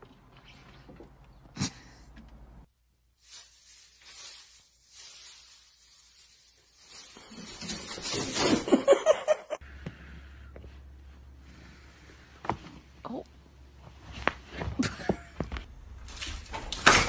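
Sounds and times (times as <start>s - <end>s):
plastic bag rustling and crinkling: 3.0s - 8.9s.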